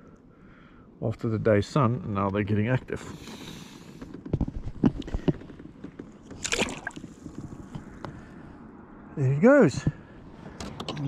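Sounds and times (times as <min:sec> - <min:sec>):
fish splashing into water: 0:06.4 - 0:07.1.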